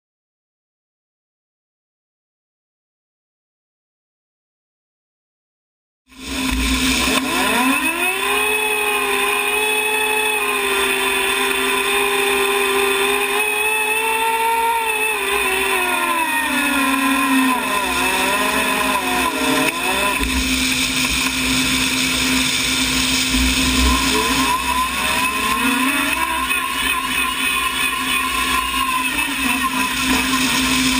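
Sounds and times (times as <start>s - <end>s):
turbine engine whining at idle: 6.1s - 30.9s.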